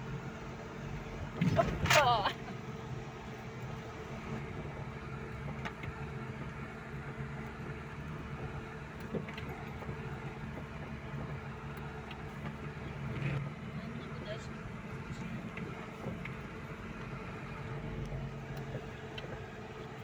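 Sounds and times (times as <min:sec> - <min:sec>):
car engine running: 0:00.0 - 0:20.0
car knocking over bumps: 0:04.4 - 0:20.0.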